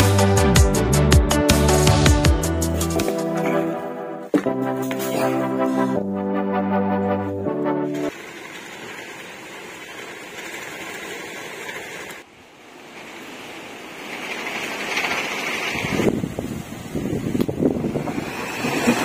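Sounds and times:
storm rain and wind: 8.1 - 19.0
wind buffeting microphone: 15.6 - 19.0.

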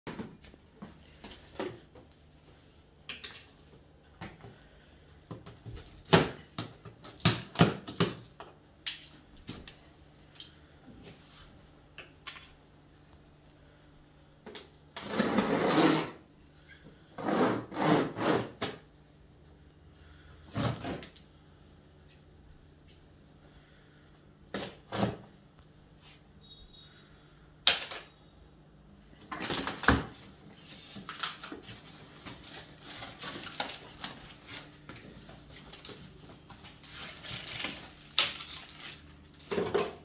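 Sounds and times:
tool scraping cardboard: 15.0 - 16.2, 17.2 - 18.7.

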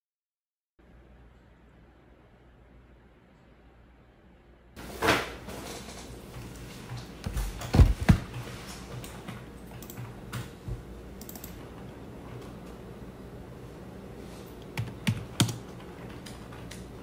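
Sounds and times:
objects thumping on desk: 7.3 - 8.4
keyboard clicks: 9.0 - 10.5, 11.2 - 11.6, 14.6 - 16.9.

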